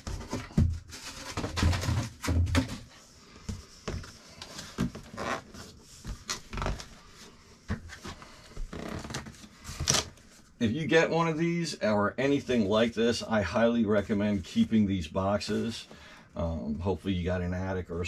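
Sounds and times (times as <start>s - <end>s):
box knocks and scrapes: 0.0s - 3.0s.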